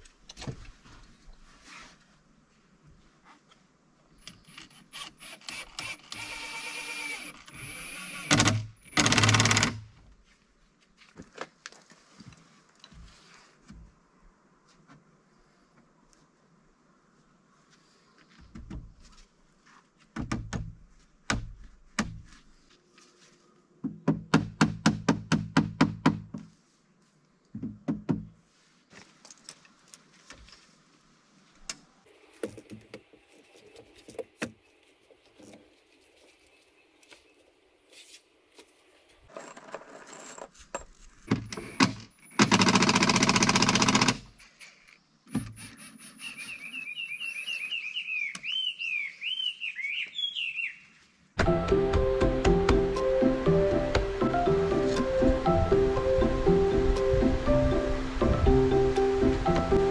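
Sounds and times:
impact driver running: 0:05.4 - 0:09.8
bird calling: 0:45.7 - 0:51.0.

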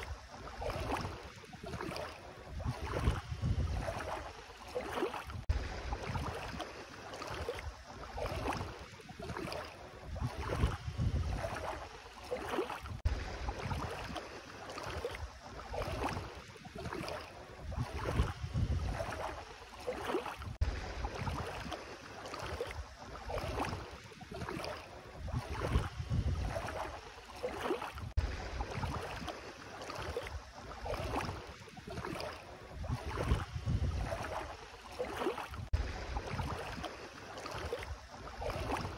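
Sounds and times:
feet wading through water: 0:00.0 - 0:38.9
wind on microphone: 0:02.4 - 0:04.2, 0:10.0 - 0:11.8, 0:17.6 - 0:19.4, 0:20.4 - 0:21.7, 0:25.1 - 0:27.0, 0:28.0 - 0:29.3, 0:32.7 - 0:34.5, 0:35.5 - 0:36.8.

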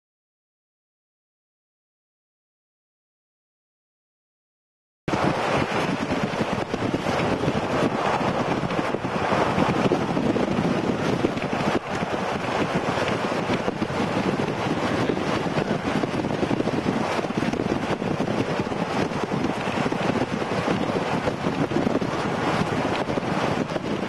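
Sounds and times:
vehicle road noise: 0:05.1 - 0:24.0
wind on microphone: 0:05.1 - 0:24.0.

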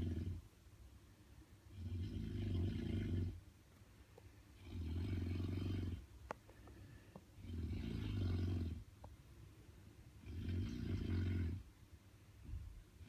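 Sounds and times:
loud rattling snores: 0:00.0 - 0:00.4, 0:01.7 - 0:03.4, 0:04.6 - 0:06.1, 0:07.4 - 0:08.9, 0:10.2 - 0:11.7.

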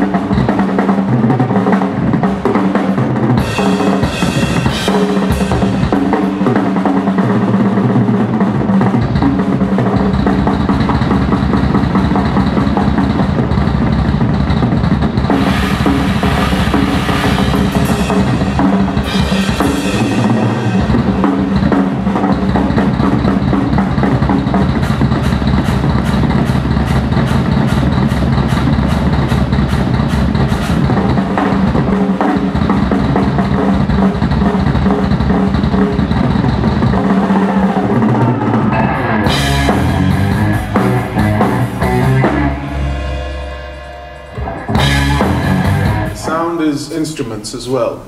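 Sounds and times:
rock drum kit playing: 0:00.0 - 0:48.0
sustained pitched tones: 0:38.0 - 0:48.0.

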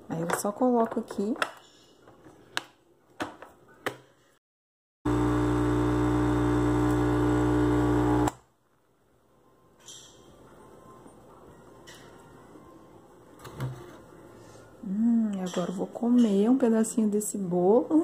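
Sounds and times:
coffee machine pump buzzing: 0:05.1 - 0:08.4.

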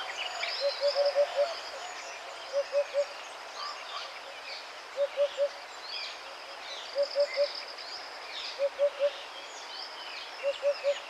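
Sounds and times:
birds chirping and twittering: 0:00.0 - 0:11.0.

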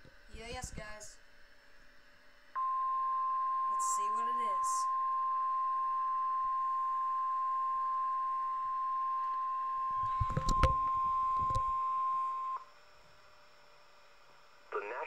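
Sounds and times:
steady pure alarm tone: 0:02.2 - 0:12.7.

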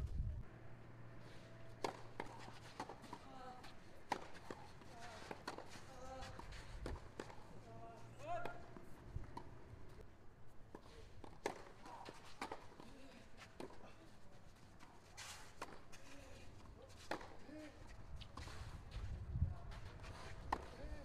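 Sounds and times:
knocks and scuffs on clay: 0:01.4 - 0:09.6, 0:14.8 - 0:21.0
tennis serve crack: 0:01.6 - 0:03.2, 0:04.0 - 0:07.5, 0:10.8 - 0:12.8.

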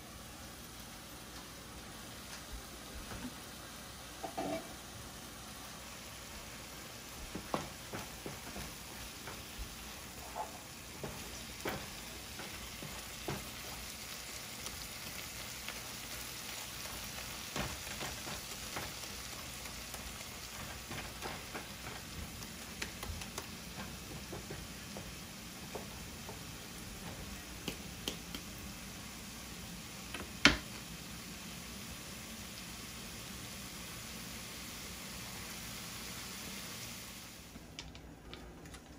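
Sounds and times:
vegetables sizzling in oil: 0:00.0 - 0:37.8
wooden spoon scraping pan: 0:10.1 - 0:13.8.

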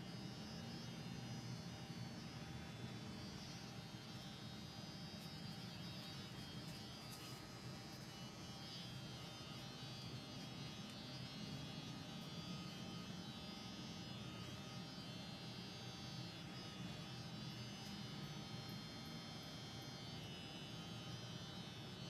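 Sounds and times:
electric hair clippers buzzing: 0:00.0 - 0:22.0.

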